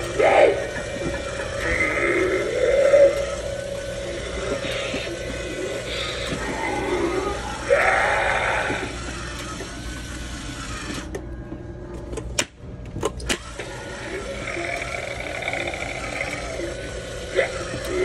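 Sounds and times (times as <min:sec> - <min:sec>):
raspy growling recorded voice: 0:00.0 - 0:09.1, 0:13.7 - 0:18.0.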